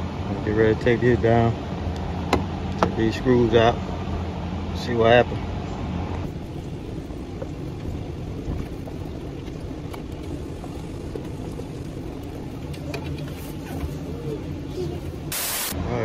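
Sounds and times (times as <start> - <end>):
car cabin rumble and hum: 6.1 - 15.4.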